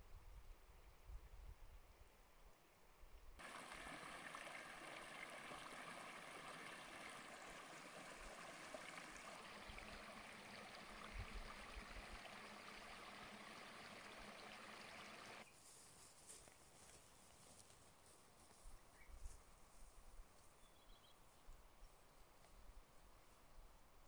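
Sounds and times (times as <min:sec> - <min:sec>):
brook babbling over stones: 0:03.4 - 0:15.5.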